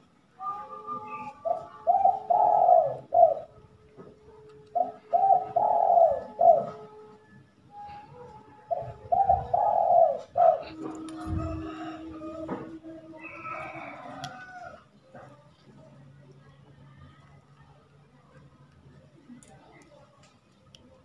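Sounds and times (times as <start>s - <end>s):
dove cooing: 0.7s - 14.8s.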